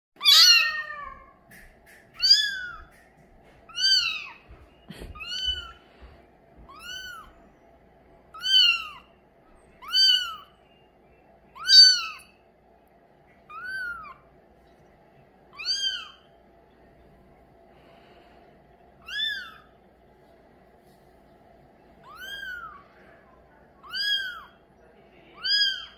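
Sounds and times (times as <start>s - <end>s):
kitten mewing: 3.7s - 5.8s, 6.7s - 7.3s, 9.8s - 10.5s, 13.5s - 14.2s, 15.6s - 16.3s, 19.0s - 19.7s, 22.0s - 22.9s, 23.8s - 24.6s, 25.4s - 25.9s.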